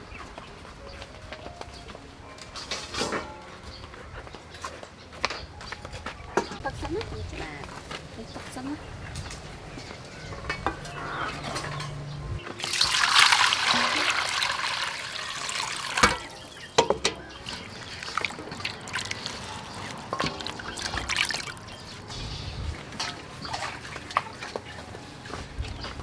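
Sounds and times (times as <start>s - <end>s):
water splashing and sloshing: 10.1s - 26.0s
water poured into steel basin: 12.6s - 22.1s
knocks against metal basin: 16.0s - 17.4s.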